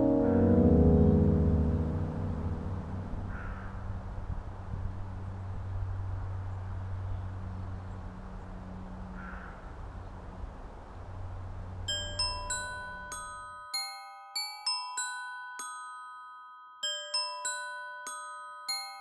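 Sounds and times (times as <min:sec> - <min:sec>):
bell-like melody: 0:00.0 - 0:03.4, 0:11.9 - 0:19.0
steady low drone with hiss: 0:00.0 - 0:13.5.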